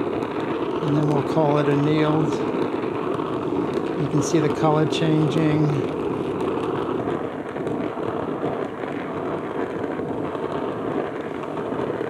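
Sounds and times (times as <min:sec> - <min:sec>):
gas torch flame rushing: 0:00.0 - 0:12.0.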